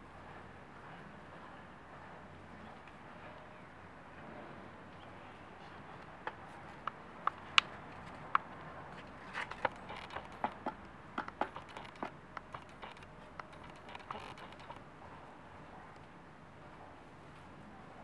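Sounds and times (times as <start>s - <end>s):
sand ticking against plastic: 6.2s - 14.8s.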